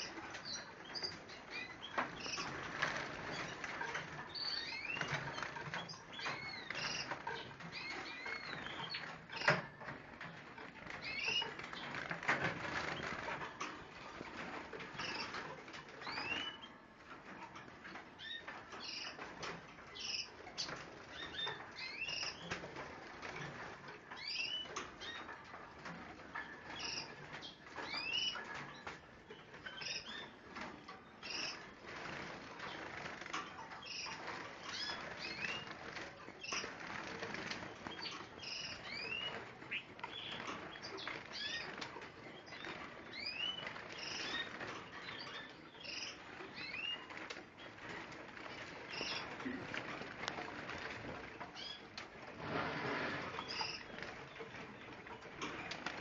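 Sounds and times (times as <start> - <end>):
birds rustling in cages: 0.0 - 56.0
caged birds chirping: 0.0 - 56.0
wings fluttering: 31.2 - 56.0.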